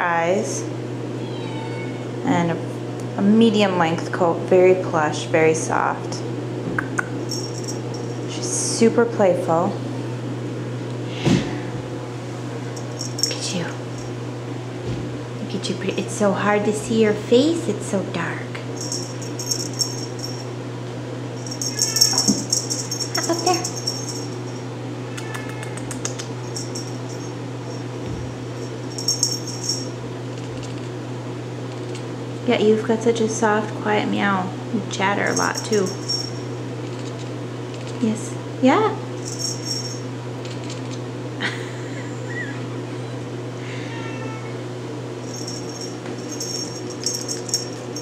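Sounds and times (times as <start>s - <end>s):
low room hum: 0.0s - 48.0s
kitten meowing softly: 1.2s - 2.0s, 25.1s - 26.0s, 43.6s - 44.5s
light high-pitched rattling: 7.3s - 8.2s, 12.8s - 14.1s, 18.8s - 20.5s, 21.4s - 24.6s, 26.0s - 30.9s, 35.3s - 38.0s, 39.2s - 41.0s, 45.3s - 48.0s.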